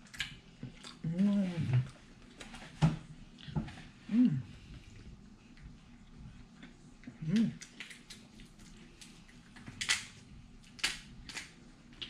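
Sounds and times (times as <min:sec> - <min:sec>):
chewing and mouth clicks: 0:00.0 - 0:01.1, 0:04.9 - 0:12.0
person humming: 0:01.0 - 0:01.9, 0:04.1 - 0:04.6, 0:07.2 - 0:07.6.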